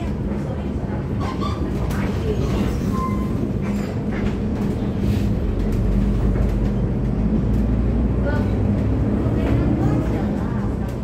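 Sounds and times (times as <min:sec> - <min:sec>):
bus engine and road rumble: 0:00.0 - 0:11.0.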